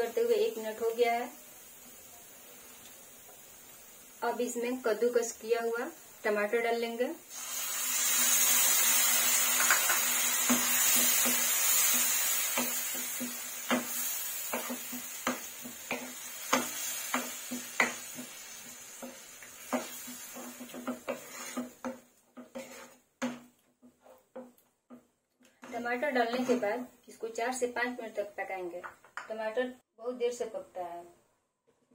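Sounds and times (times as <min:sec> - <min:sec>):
tomato pulp sizzling in oil: 0:00.0 - 0:25.0, 0:25.6 - 0:28.2
wooden spatula knocking pan: 0:09.6 - 0:18.4, 0:19.0 - 0:25.1.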